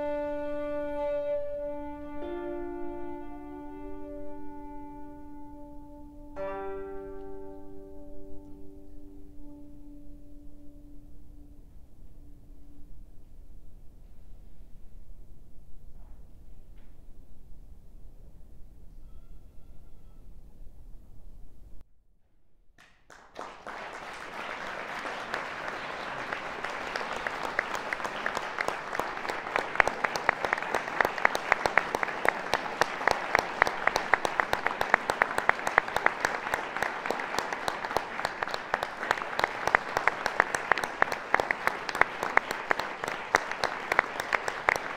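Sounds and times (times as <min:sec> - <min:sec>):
audience applause: 0:22.8 - 0:44.9.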